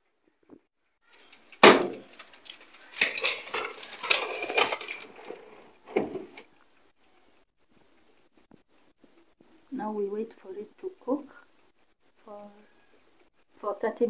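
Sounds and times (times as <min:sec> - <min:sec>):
foil crinkling: 0:01.1 - 0:05.7
metal scraping and rattling: 0:01.2 - 0:06.4
metal tray clanking: 0:01.2 - 0:06.4.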